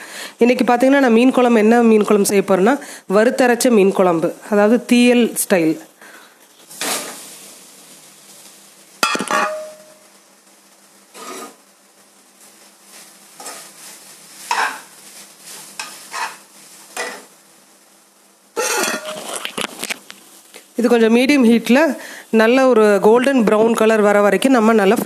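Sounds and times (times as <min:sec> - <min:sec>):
spoon scraping metal pan: 0:11.1 - 0:11.6, 0:13.4 - 0:13.7, 0:14.5 - 0:14.9, 0:15.8 - 0:17.3, 0:18.6 - 0:19.5.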